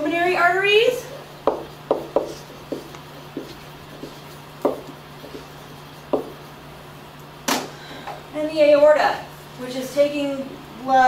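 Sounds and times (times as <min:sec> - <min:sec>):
marker writing on whiteboard: 0:01.5 - 0:06.5.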